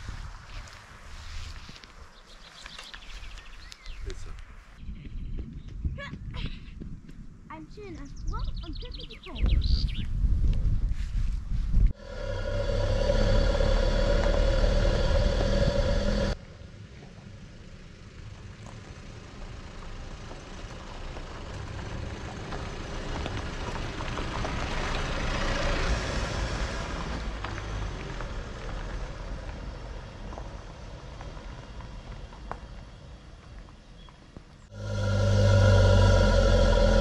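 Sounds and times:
vehicle rumbling and rushing past: 12.0 - 16.4, 34.7 - 37.0.

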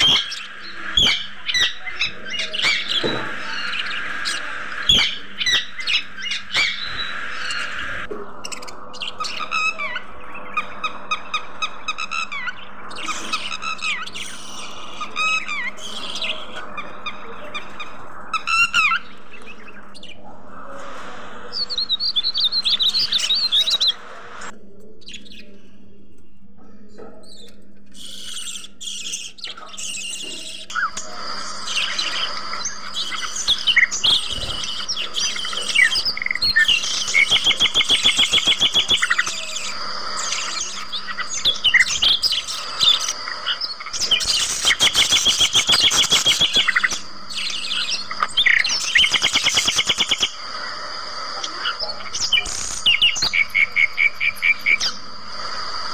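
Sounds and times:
budgerigars chirping and chattering: 0.0 - 25.6, 26.9 - 55.9
fast rattling trills: 28.0 - 55.9.

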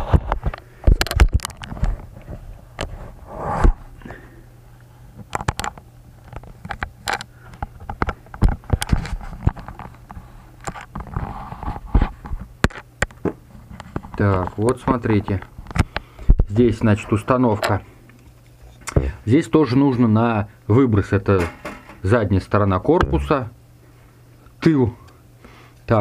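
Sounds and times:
plastic fan clicks and knocks: 0.5 - 1.7, 5.2 - 9.9.

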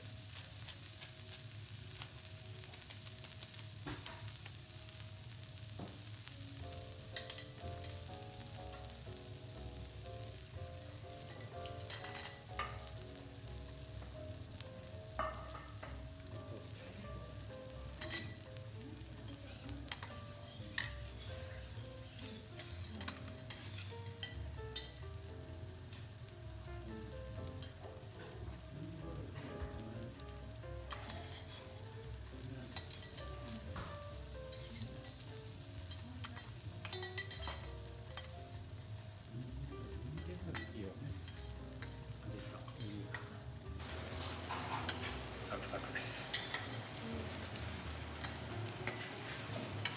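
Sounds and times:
soft background music: 0.0 - 49.9
steak sizzling on griddle: 0.0 - 49.9
metal spatulas scraping plate: 19.5 - 24.0.

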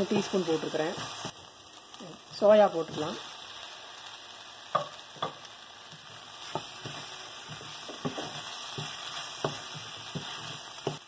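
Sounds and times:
food sizzling in a pan: 0.0 - 11.0
wooden spatula knocking on pan: 4.7 - 5.4, 6.4 - 11.0.

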